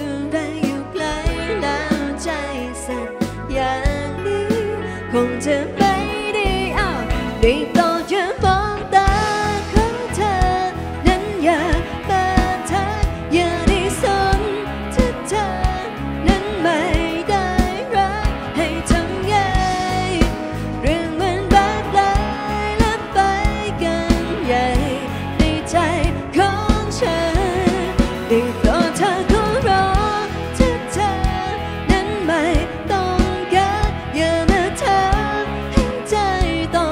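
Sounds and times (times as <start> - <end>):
bass guitar: 0.0 - 36.9
electric guitars: 0.0 - 36.9
keyboard: 0.0 - 36.9
woman singing lead: 0.0 - 36.9
drum kit beat: 21.4 - 36.2.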